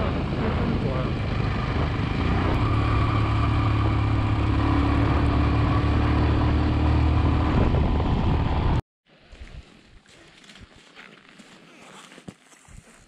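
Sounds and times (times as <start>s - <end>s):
motorcycle engine pulling uphill: 0.0s - 8.8s
wind and road noise: 0.0s - 11.0s.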